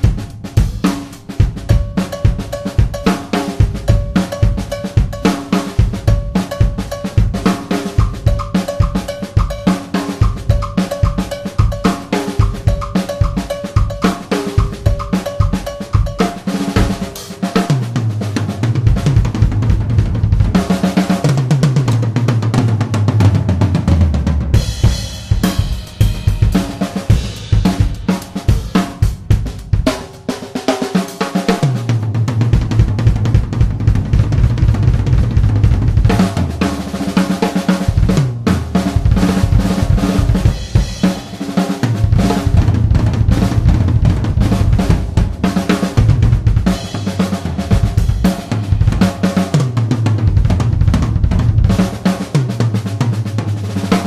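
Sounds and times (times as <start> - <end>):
cymbal and hi-hat strikes: 0.0 - 19.6, 24.5 - 32.1, 35.6 - 50.5
drum kit playing: 0.0 - 54.0.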